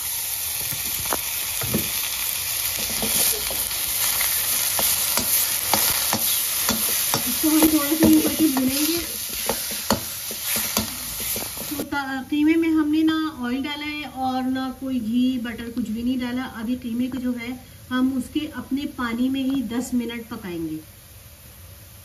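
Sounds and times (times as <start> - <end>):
minced meat sizzling in a pan: 0.0 - 12.0
metal spoon scraping a pan: 2.7 - 11.8.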